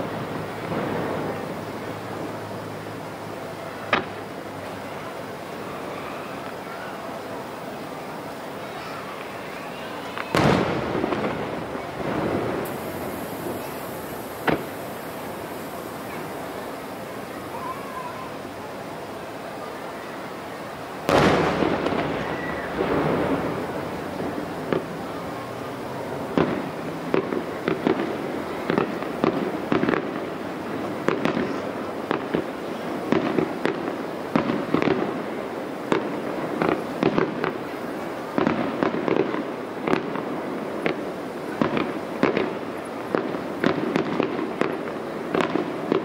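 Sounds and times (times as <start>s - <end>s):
fireworks shells bursting: 10.1s - 17.6s, 21.0s - 25.3s.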